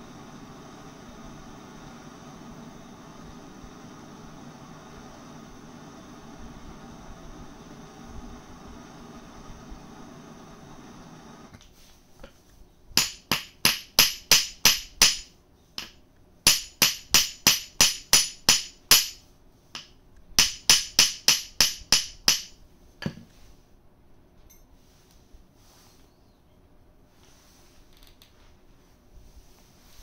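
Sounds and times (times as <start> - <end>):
steady hiss: 0.0 - 23.8, 27.0 - 30.0
hammer striking steel punch: 13.0 - 19.2, 19.8 - 23.2.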